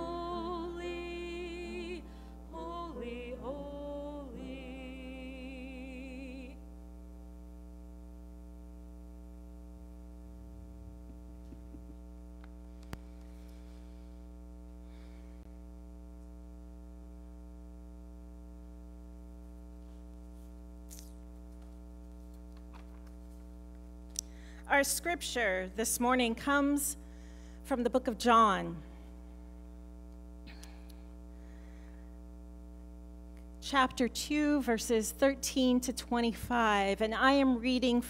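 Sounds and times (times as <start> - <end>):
hymn singing with vibrato: 0.0 - 6.6
steady tonal hum: 0.0 - 38.0.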